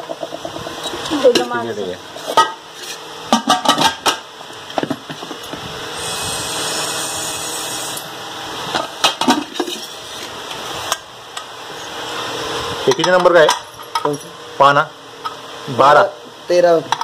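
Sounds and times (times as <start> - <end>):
metal lid knocks and clatter: 3.3 - 4.2.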